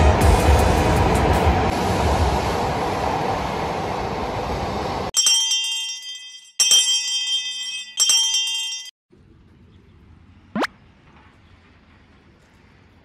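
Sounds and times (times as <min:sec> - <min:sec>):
train rushing past: 0:00.0 - 0:05.1
bell ringing: 0:05.2 - 0:09.0.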